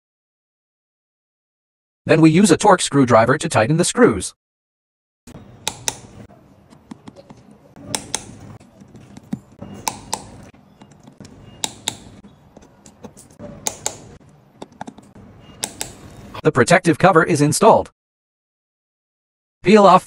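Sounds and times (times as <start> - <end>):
torque screwdriver clicking: 7.9 - 8.4, 9.2 - 12.1, 13.6 - 14.1, 15.6 - 16.0.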